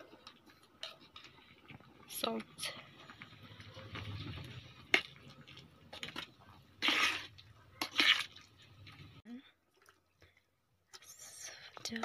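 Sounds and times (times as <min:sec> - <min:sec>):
spoon scraping pot: 0:03.4 - 0:08.6.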